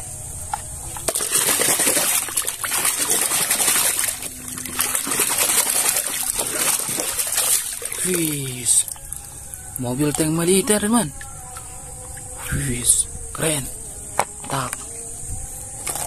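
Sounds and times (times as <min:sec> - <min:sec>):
water splashing and sloshing: 0:00.5 - 0:12.4.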